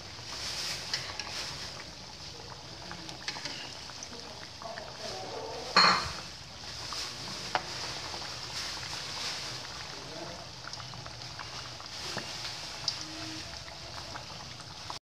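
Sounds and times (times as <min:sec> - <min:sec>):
food deep-frying in hot oil: 0:00.0 - 0:15.0
spatula scraping a wok: 0:00.2 - 0:02.0, 0:03.1 - 0:03.9, 0:05.6 - 0:09.4.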